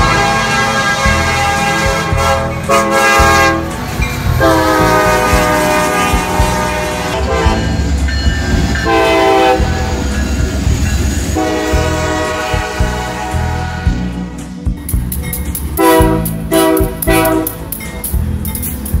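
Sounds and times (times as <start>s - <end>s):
locomotive air horn blasts: 0.0s - 7.8s, 8.8s - 10.0s, 11.3s - 14.3s, 15.8s - 17.7s
locomotive engine rumble: 0.0s - 19.0s
train wheels rolling: 0.0s - 19.0s.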